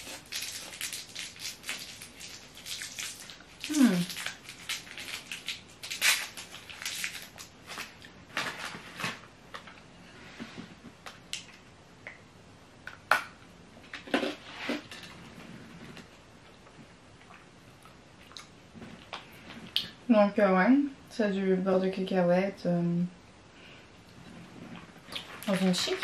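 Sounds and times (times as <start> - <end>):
candy being bitten and chewed: 0.0 - 9.7.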